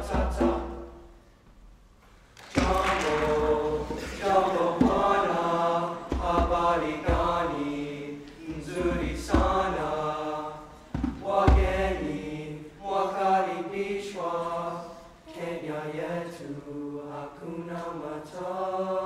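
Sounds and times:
choir singing in harmony: 0:00.0 - 0:01.2, 0:02.4 - 0:19.0
deep hand drum beats: 0:02.6 - 0:05.4, 0:06.0 - 0:07.7, 0:08.5 - 0:10.0, 0:10.9 - 0:12.2.

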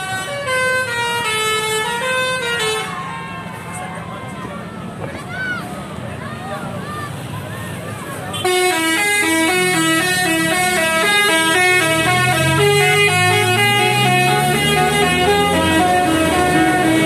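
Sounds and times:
multi-tone bus horn melody: 0:00.0 - 0:03.1, 0:08.3 - 0:17.0
bus engine pulling away: 0:00.0 - 0:17.0.

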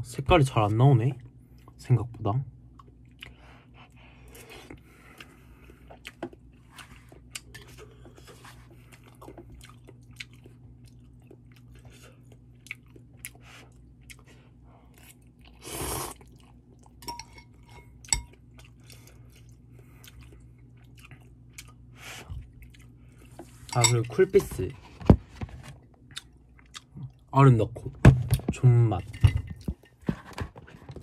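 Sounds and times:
steady low hum: 0:00.0 - 0:31.0
chewing and wet mouth clicks: 0:08.9 - 0:14.3.

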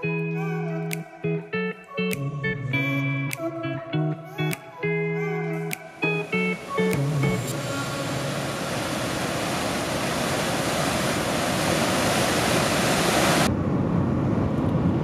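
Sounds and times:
waterfall rushing: 0:06.2 - 0:13.5
moving vehicle rumble: 0:13.4 - 0:15.0.

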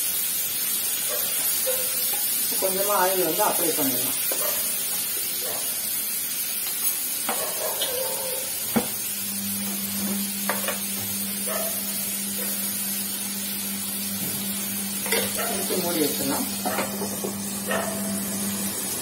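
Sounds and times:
chicken sizzling in hot oil: 0:00.0 - 0:19.0
spoon scraping and tapping in pan: 0:02.1 - 0:02.3, 0:10.4 - 0:10.8, 0:15.0 - 0:15.6.

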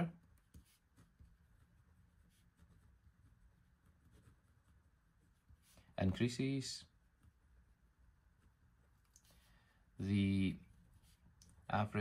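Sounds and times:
ballpoint pen scratching on paper: 0:00.2 - 0:05.8.

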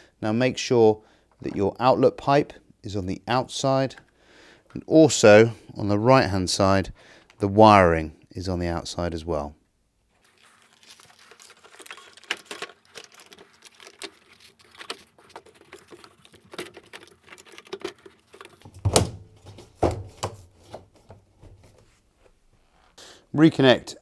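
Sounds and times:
plastic clicking and rattling: 0:11.6 - 0:19.1.

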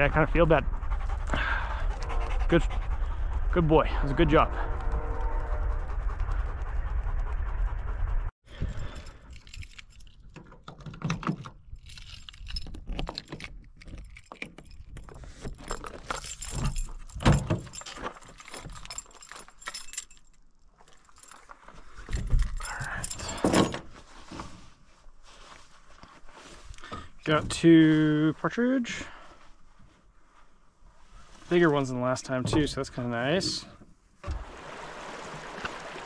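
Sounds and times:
keys jangling on a ring: 0:08.7 - 0:23.9
latches clicking and knocking: 0:09.3 - 0:19.9.

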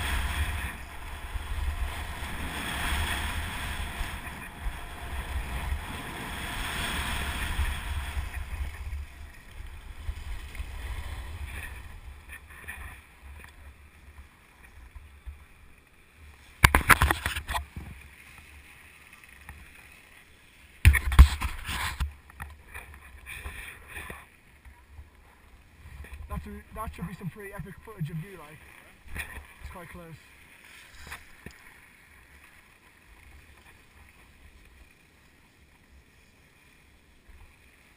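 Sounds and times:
wind rumbling on microphone: 0:00.0 - 0:13.7
skis hissing over snow: 0:30.1 - 0:31.4.

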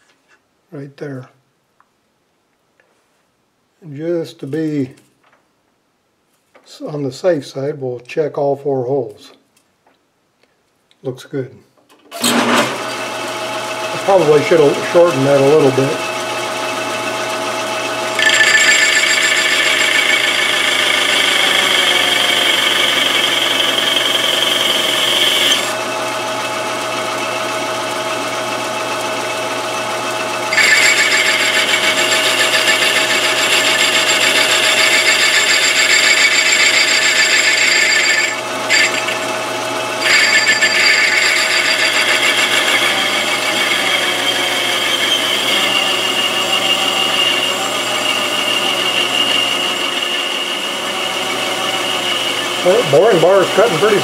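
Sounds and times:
lathe motor and gear hum: 0:12.2 - 0:54.0
ringing metal cutting: 0:18.2 - 0:25.8, 0:30.5 - 0:50.4.

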